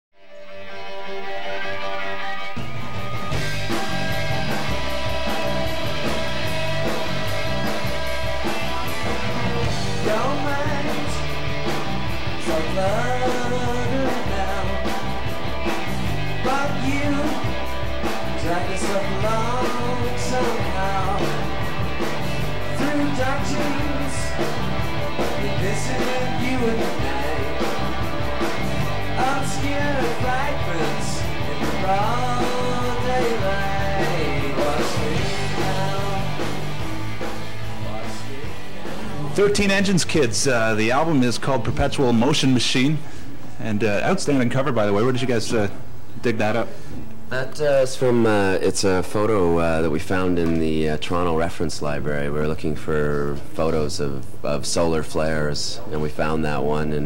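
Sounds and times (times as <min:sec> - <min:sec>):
live rock band playing: 0:00.3 - 0:42.8
male lead vocal: 0:08.8 - 0:11.4, 0:12.3 - 0:15.2, 0:16.3 - 0:17.6, 0:18.3 - 0:21.6, 0:22.6 - 0:24.6, 0:25.2 - 0:28.0, 0:29.0 - 0:40.2.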